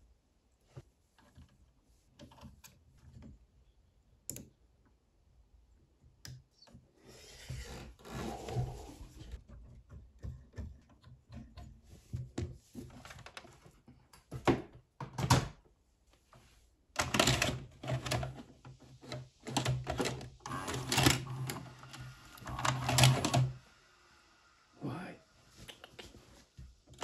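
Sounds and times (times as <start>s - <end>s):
cassette-loading motor humming: 19.5s - 23.6s.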